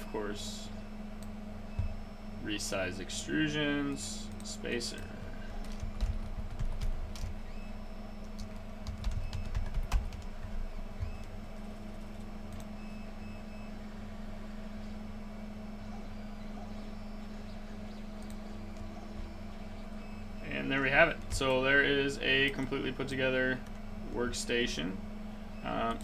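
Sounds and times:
steady low hum: 0.0s - 26.0s
typing on computer keyboard: 5.6s - 7.4s, 8.2s - 10.3s.

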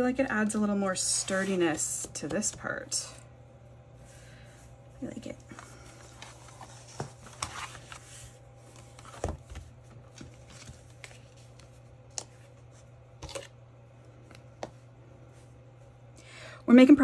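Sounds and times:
paper rustling: 5.5s - 11.9s.

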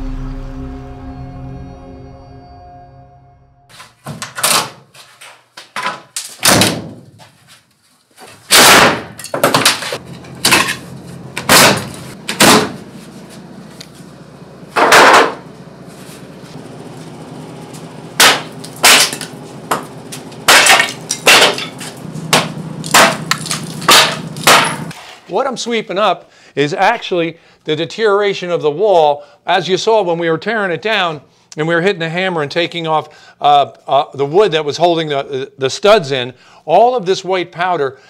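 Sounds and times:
boards clattering when dropped: 3.7s - 7.4s, 8.2s - 12.9s, 14.8s - 15.4s, 18.2s - 25.2s
wood cracking and breaking away: 8.3s - 12.8s, 18.2s - 19.8s, 20.5s - 24.9s.

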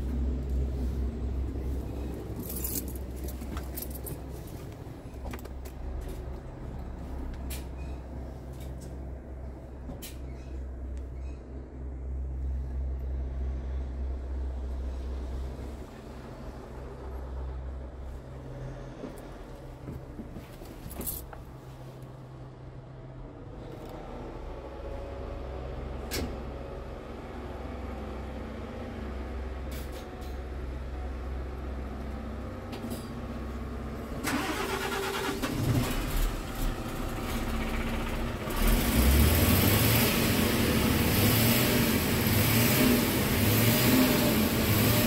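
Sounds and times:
truck diesel engine running: 30.6s - 45.0s.

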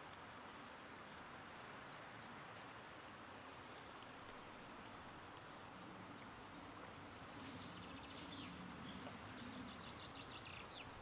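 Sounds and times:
soft steady hiss: 0.0s - 11.0s
light rustles: 7.3s - 9.3s.

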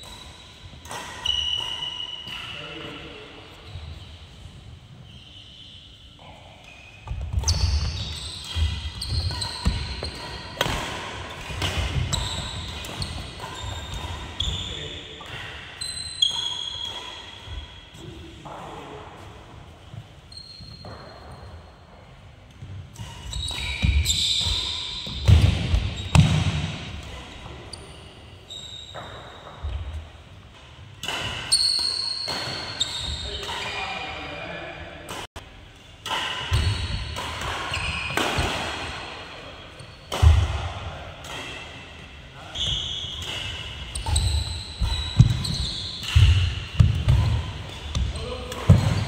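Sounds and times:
racket hitting shuttlecock: 0.0s - 2.6s, 7.1s - 14.5s, 22.9s - 27.3s, 31.0s - 33.7s, 36.0s - 39.1s, 40.1s - 41.8s, 43.1s - 49.0s
shoe squeaks: 0.0s - 18.0s, 20.2s - 21.7s, 23.0s - 26.4s, 27.6s - 30.0s, 31.3s - 34.3s, 36.1s - 38.2s, 42.4s - 49.0s
shoes squeaking on wooden floor: 7.0s - 10.5s, 43.8s - 49.0s.

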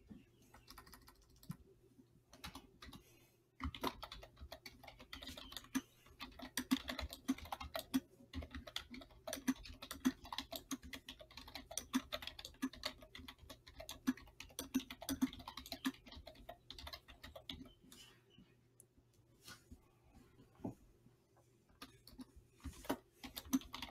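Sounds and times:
computer keyboard typing: 0.5s - 1.6s, 2.3s - 17.8s, 21.8s - 23.9s.

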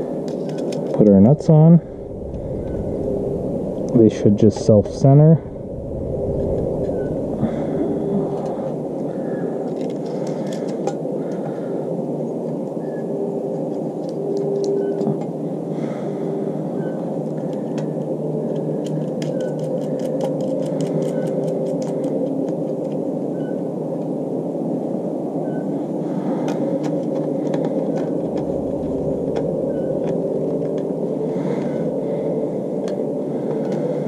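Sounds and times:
low background rumble: 0.0s - 9.7s, 25.8s - 33.6s.

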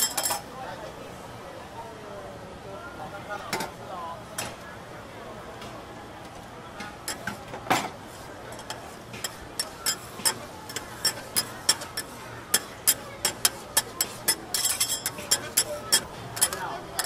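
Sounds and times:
metal spatulas clacking on griddle: 0.0s - 0.4s, 6.8s - 17.0s.

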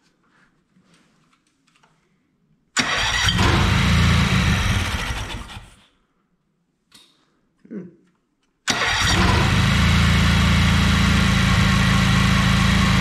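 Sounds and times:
mower engine cranking: 2.8s - 5.8s, 8.7s - 13.0s.

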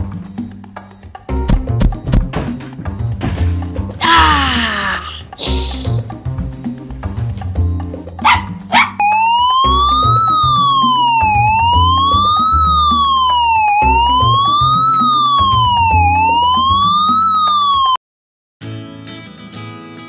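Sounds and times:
background music: 0.0s - 17.9s
police siren wailing: 8.9s - 18.0s.

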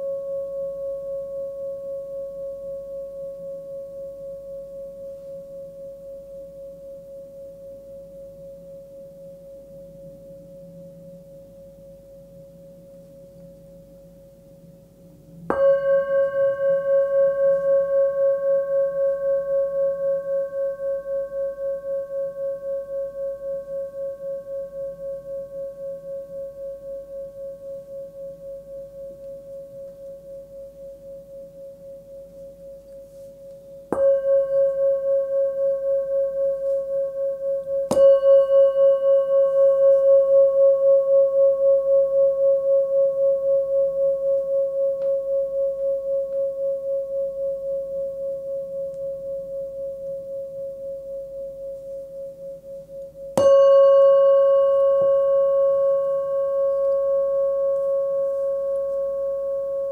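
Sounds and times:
singing bowl ringing: 15.4s - 59.9s.

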